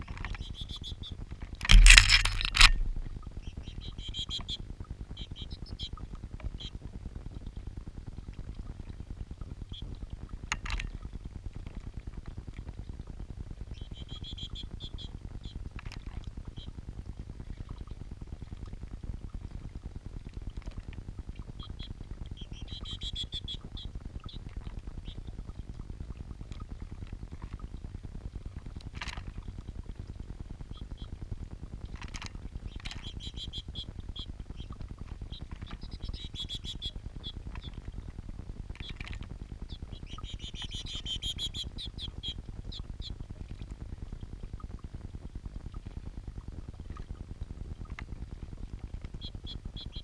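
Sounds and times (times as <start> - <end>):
small birds chirping: 0.0 - 4.6, 13.7 - 15.6, 21.6 - 25.3, 32.6 - 37.9, 38.8 - 43.2, 49.2 - 50.0
fountain bubbling and gurgling: 2.8 - 50.0
birds chirping: 32.7 - 37.8, 39.7 - 43.2.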